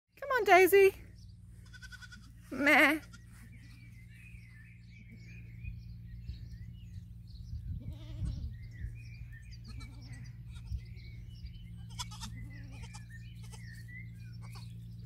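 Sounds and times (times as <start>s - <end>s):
birds chirping: 0.1s - 15.0s
goat kid bleating: 1.6s - 3.4s, 7.8s - 8.5s, 9.6s - 10.8s, 11.8s - 13.8s, 14.4s - 14.8s.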